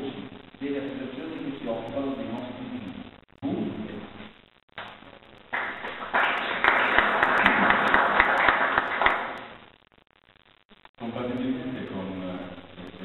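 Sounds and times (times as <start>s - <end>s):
audience applauding: 5.5s - 9.5s.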